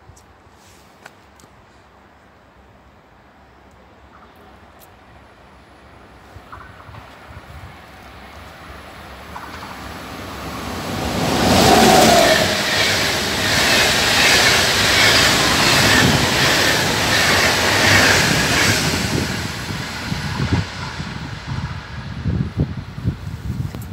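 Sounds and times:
passenger train passing: 2.1 - 23.9
wheels clattering on rails: 9.2 - 20.6.

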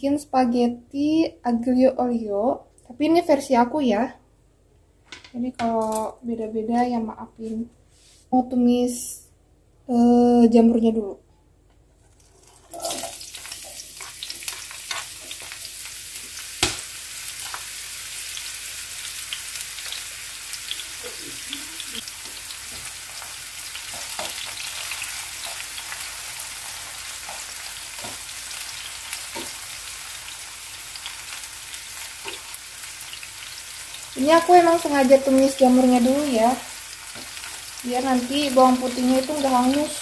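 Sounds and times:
mushrooms sizzling in oil: 12.7 - 40.0.

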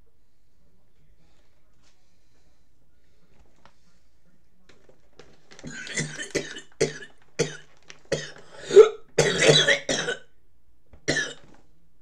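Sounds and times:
man coughing: 5.6 - 10.2, 11.1 - 11.5.

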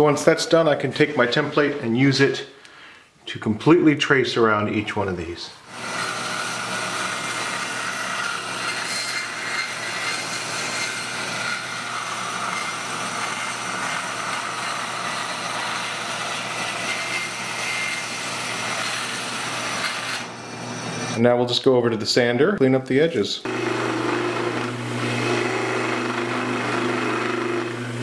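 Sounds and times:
band saw motor hum: 5.7 - 21.2, 23.4 - 28.0.

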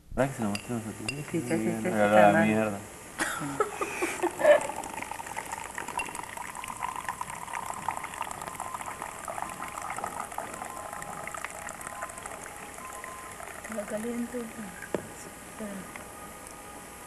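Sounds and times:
liquid bubbling and crackling: 4.1 - 16.7.

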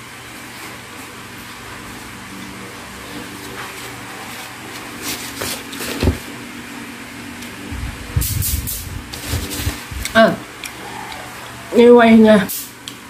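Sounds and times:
low mechanical hum: 0.0 - 13.0
low rumbling thumps: 7.7 - 10.2.

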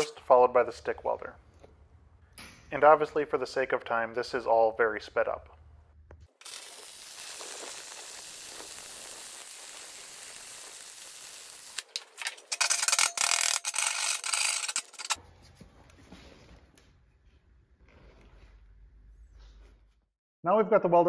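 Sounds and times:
welding arc hissing and crackling: 6.3 - 15.2
rough rasping with sharp clicks: 11.8 - 15.2.

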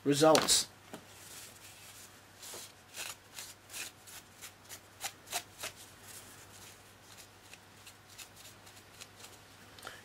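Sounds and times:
tissue paper rustling on plastic: 1.1 - 4.2.

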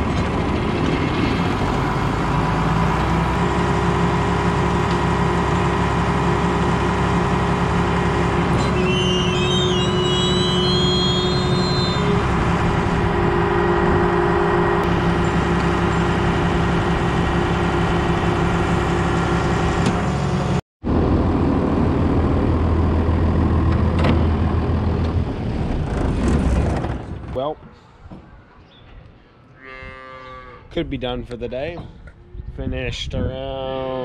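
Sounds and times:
tractor engine low hum: 0.0 - 27.1
diesel tractor engine running: 0.0 - 27.2.

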